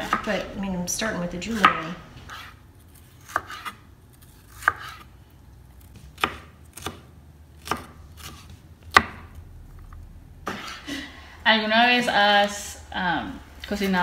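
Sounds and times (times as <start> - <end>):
knife chopping on plastic board: 4.5 - 5.1, 6.0 - 9.2.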